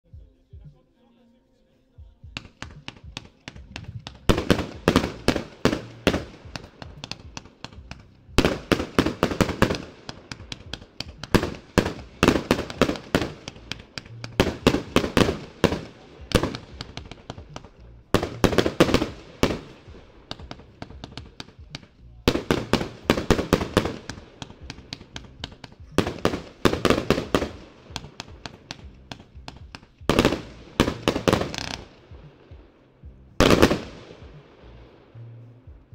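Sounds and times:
fireworks shots and bursts: 2.0s - 35.9s.

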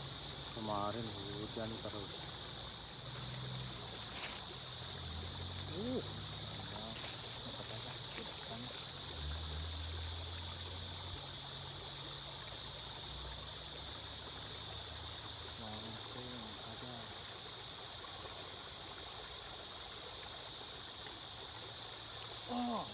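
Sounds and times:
high-pitched outdoor hiss: 0.0s - 22.9s.

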